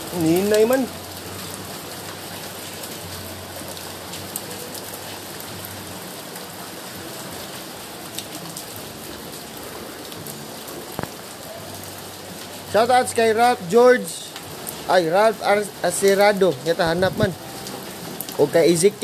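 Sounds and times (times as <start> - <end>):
steady rain falling: 0.0 - 19.0
sharp drips and taps: 0.1 - 5.7, 10.9 - 11.8, 12.4 - 19.0.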